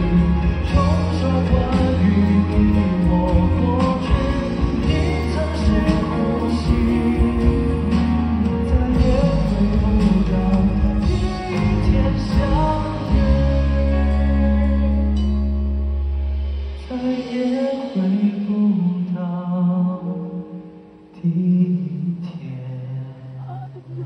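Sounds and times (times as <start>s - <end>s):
man singing pop ballad: 0.0s - 15.8s, 16.8s - 24.0s
bass guitar: 0.0s - 17.3s
keyboard: 0.0s - 24.0s.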